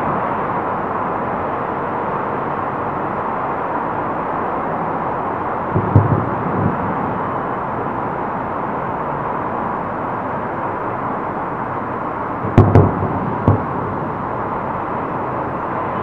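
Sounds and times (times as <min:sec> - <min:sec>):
firework bangs: 0:05.7 - 0:07.8, 0:12.4 - 0:14.6.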